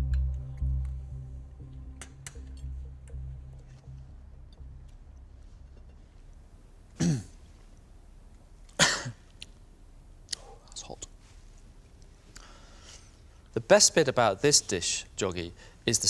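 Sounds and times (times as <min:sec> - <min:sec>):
low background music: 0:00.0 - 0:10.3
man coughing: 0:07.0 - 0:07.4, 0:08.8 - 0:09.2.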